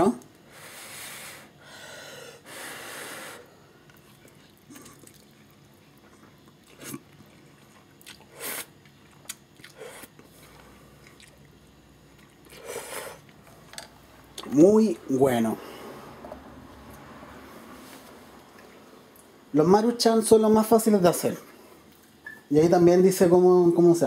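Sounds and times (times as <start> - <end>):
faint chewing: 3.8 - 14.6.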